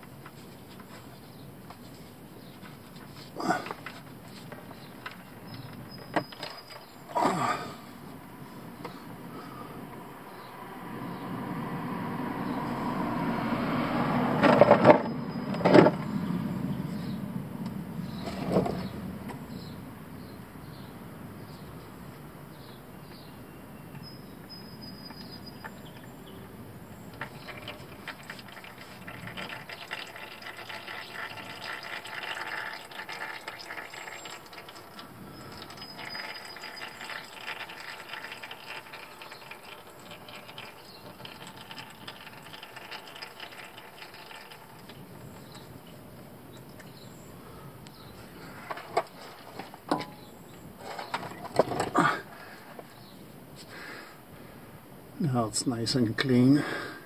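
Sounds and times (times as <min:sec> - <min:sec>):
oil pouring into drain pan: 0:27.1 - 0:46.0.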